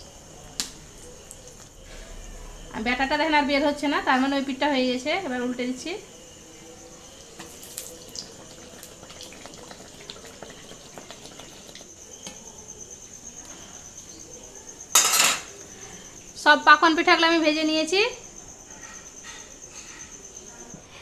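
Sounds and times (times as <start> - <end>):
cricket chirping: 0.0 - 21.0
hot oil sizzling and crackling: 6.3 - 12.4.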